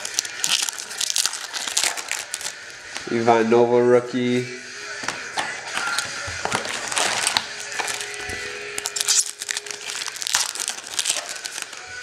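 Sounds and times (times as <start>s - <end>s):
foil wrapper tearing and crinkling: 0.0s - 2.8s, 5.8s - 12.0s.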